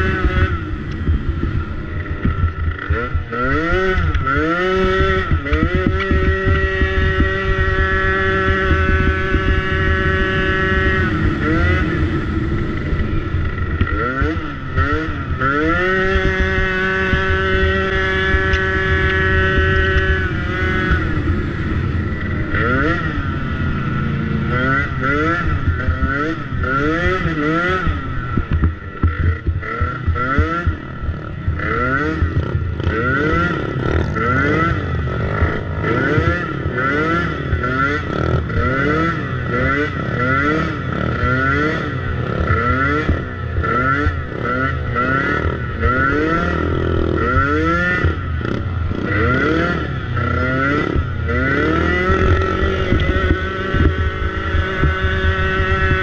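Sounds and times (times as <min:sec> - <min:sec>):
dirt bike engine revving: 0:00.0 - 0:56.0
bike knocks and clatter: 0:04.2 - 0:10.4.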